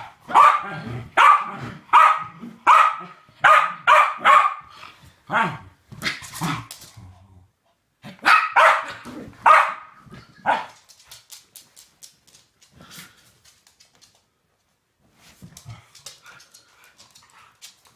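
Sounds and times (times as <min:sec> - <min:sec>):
dog barking: 0:00.0 - 0:04.7, 0:05.3 - 0:05.6, 0:08.1 - 0:10.8.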